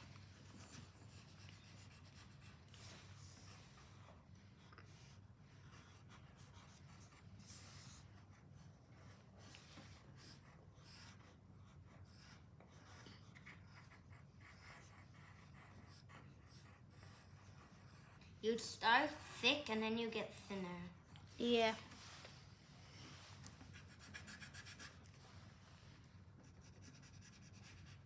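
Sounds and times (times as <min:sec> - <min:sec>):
pencil scratching on paper: 0:00.0 - 0:22.4, 0:23.2 - 0:28.0.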